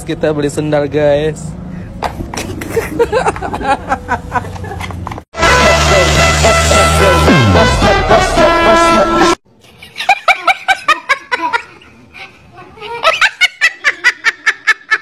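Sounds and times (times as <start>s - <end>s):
woman laughing hard: 2.6s - 4.9s, 9.8s - 11.9s, 12.9s - 15.0s
music: 5.4s - 9.4s.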